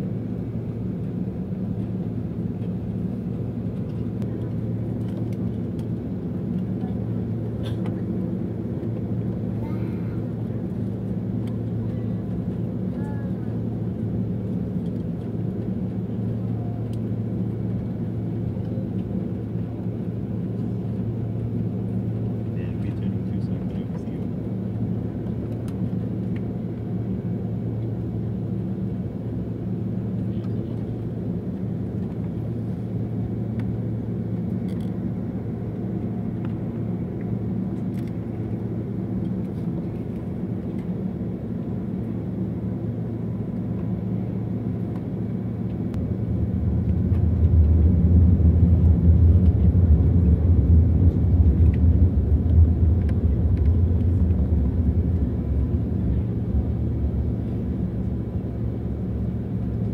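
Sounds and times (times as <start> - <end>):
jet engines droning at idle: 0.0 - 59.9
aircraft rolling: 0.2 - 9.6, 10.2 - 59.9.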